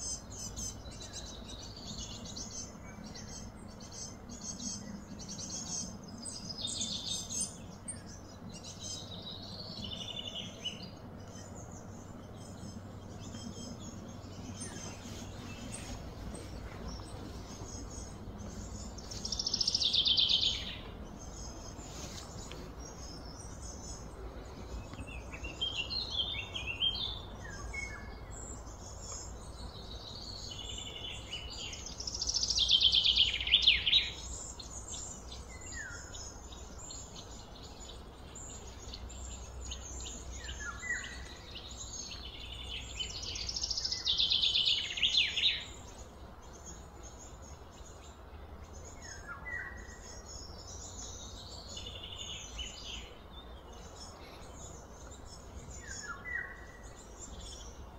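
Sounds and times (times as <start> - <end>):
birds singing: 0.0 - 57.9
steady low rumble: 0.1 - 44.8.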